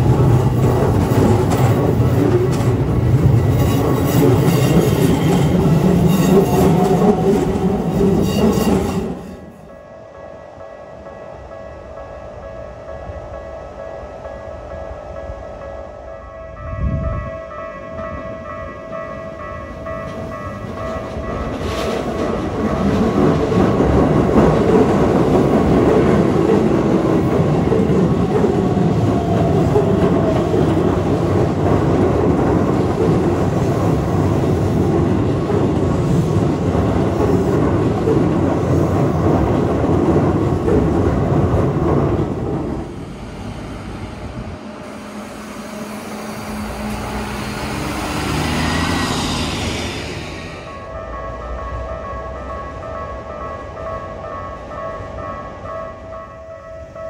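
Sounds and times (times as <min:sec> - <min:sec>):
train wheels clattering: 0:00.0 - 0:09.5, 0:19.4 - 0:50.7
train whining: 0:00.0 - 0:57.0.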